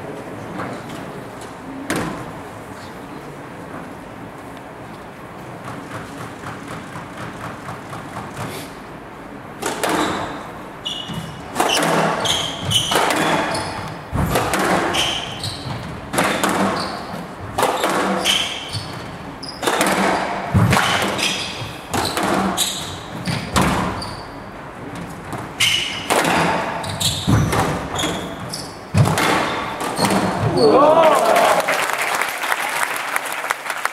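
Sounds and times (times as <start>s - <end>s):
squash racket striking ball: 5.6s - 8.6s, 9.6s - 24.3s, 24.9s - 30.6s
ball hitting walls: 9.6s - 24.3s, 24.9s - 30.8s
shoes squeaking on court: 9.6s - 30.7s.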